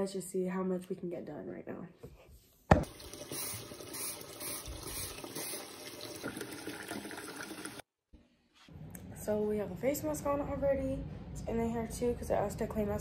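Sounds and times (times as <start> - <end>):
tap water running into sink: 2.8 - 7.8.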